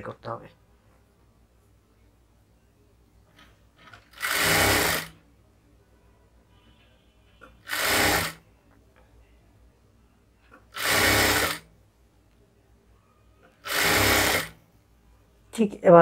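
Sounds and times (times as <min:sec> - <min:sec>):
sewing machine stitching: 0:03.8 - 0:05.2, 0:07.6 - 0:08.4, 0:10.6 - 0:11.7, 0:13.6 - 0:14.6.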